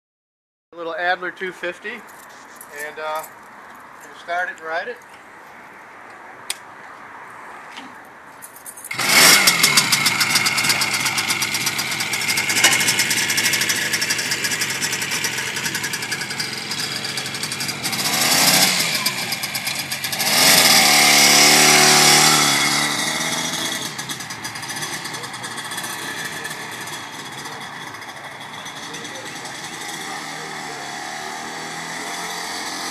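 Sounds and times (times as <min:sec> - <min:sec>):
two-stroke motorcycle engine: 0:08.9 - 0:32.9.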